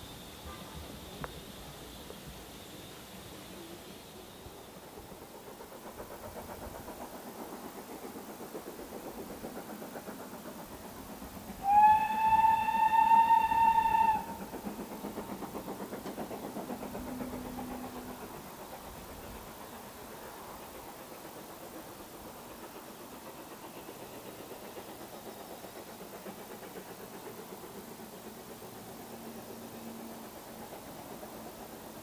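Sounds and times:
distant steam locomotive working: 0.0s - 32.0s
steam whistle blast: 11.6s - 14.4s.

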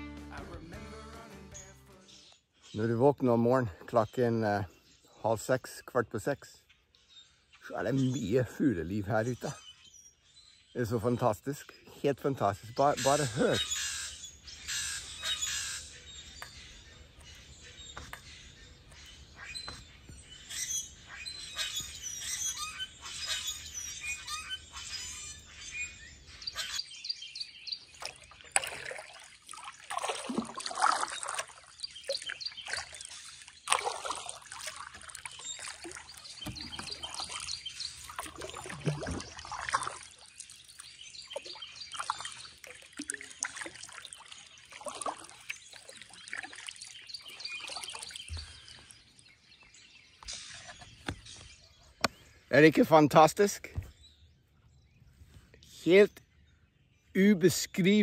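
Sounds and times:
birds chirping and singing: 0.0s - 58.0s
water trickling off paddle: 27.7s - 49.4s
kayak paddle strokes: 27.8s - 49.0s.

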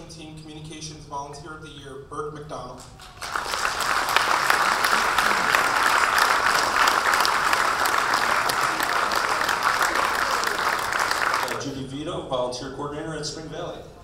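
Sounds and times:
audience applauding: 2.8s - 11.6s.

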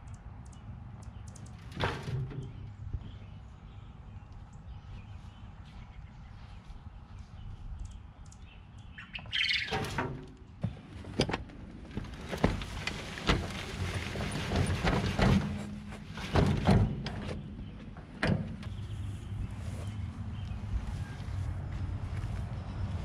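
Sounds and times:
soil sliding from wheelbarrow: 12.2s - 16.2s
sharp knocks on wheelbarrow: 14.3s - 17.4s.

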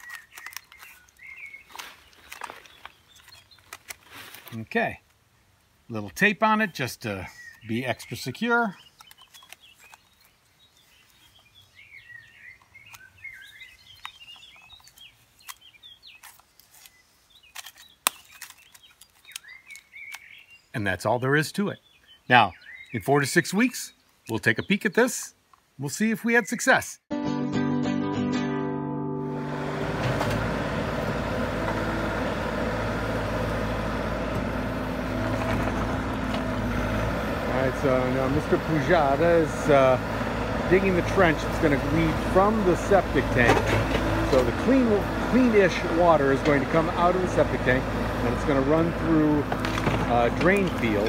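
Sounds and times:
birds singing and chirping: 0.0s - 4.0s, 5.9s - 25.3s, 26.0s - 27.0s, 30.4s - 51.0s
bucket digging rocky soil: 0.0s - 4.6s, 37.5s - 51.0s
diesel engine running: 29.2s - 51.0s.

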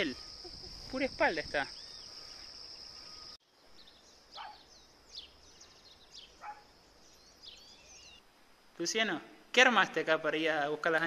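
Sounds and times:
high-pitched insect trill: 0.0s - 3.4s
faint insect hum: 0.0s - 9.7s.

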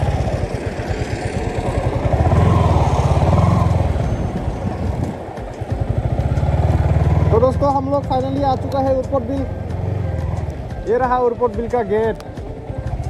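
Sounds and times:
wind rush: 0.0s - 6.4s
motorcycle engine running: 0.0s - 13.0s.

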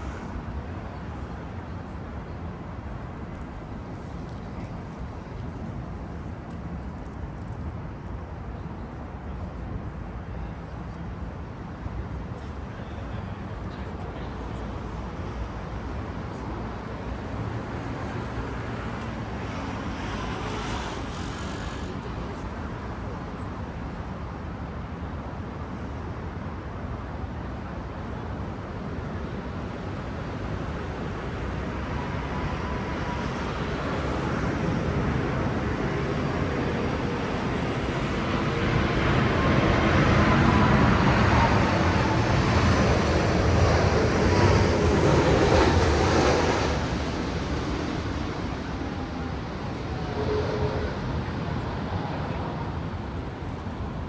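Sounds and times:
city traffic noise: 0.0s - 54.0s
loud engine passing: 34.6s - 52.2s.

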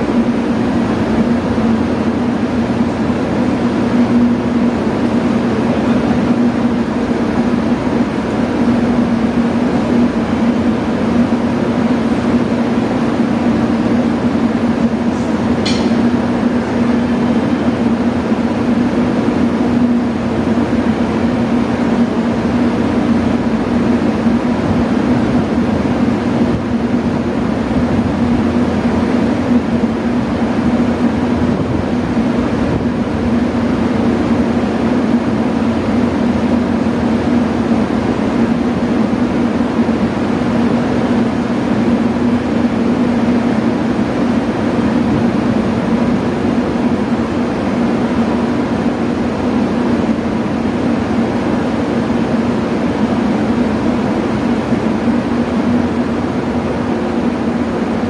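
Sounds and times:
electric train humming: 0.0s - 58.0s.

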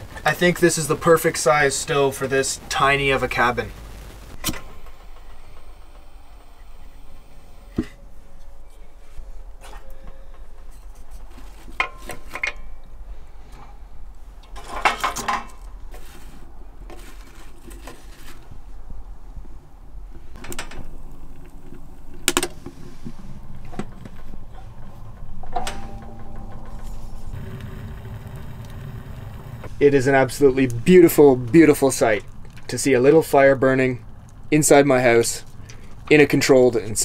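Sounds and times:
kindling fire burning: 0.0s - 25.5s, 26.1s - 37.0s
steel stove door handled: 25.4s - 26.9s.

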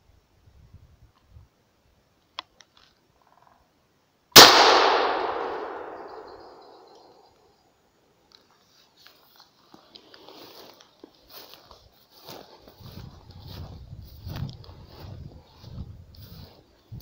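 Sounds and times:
shotgun shot with rolling echo: 4.4s - 7.2s.

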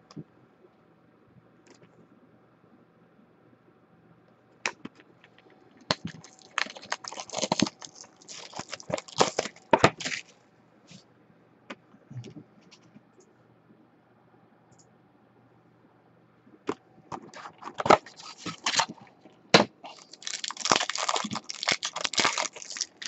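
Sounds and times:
plastic shrink wrap crinkling: 5.9s - 10.3s, 17.3s - 19.1s, 19.8s - 23.0s.

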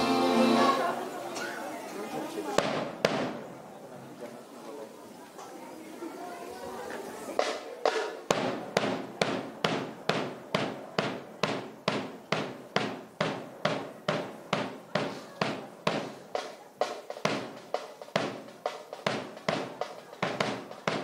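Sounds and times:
marching steps stamping in unison: 7.4s - 21.0s.

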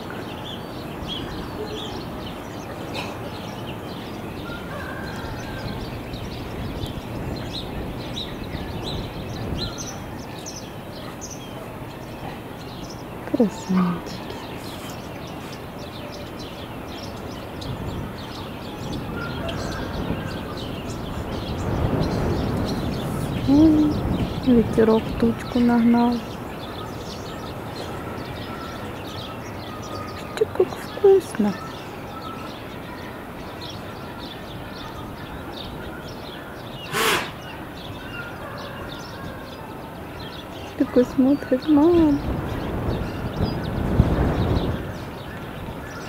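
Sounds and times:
outdoor background rush: 0.0s - 46.0s
small birds chirping: 0.0s - 46.0s
wind rumble on microphone: 0.0s - 46.0s
short loud burst of noise: 36.9s - 37.4s.

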